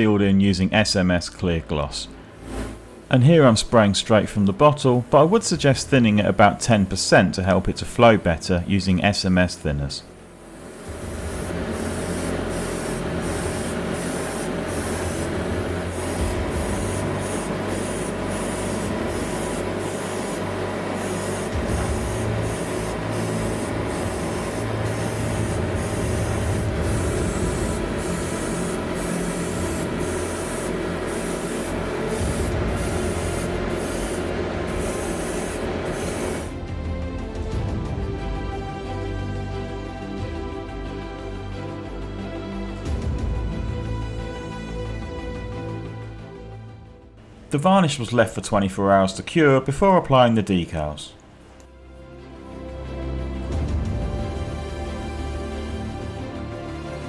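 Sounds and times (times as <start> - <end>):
steady low hum: 0.0 - 37.0
airbrush spraying hiss: 10.3 - 36.6.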